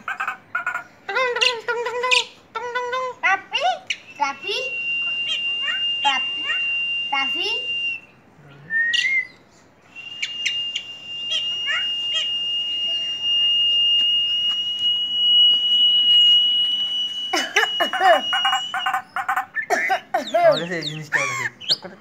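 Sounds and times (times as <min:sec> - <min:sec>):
myna chirps and calls: 0:00.0 - 0:07.7, 0:08.4 - 0:13.1, 0:17.8 - 0:22.0
steady high whistling tone: 0:04.0 - 0:19.2.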